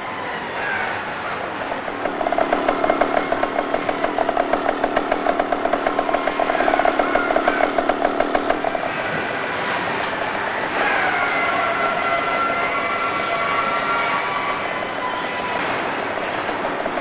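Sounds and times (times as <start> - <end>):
motorcycle engine running: 1.8 - 9.0, 16.3 - 17.0.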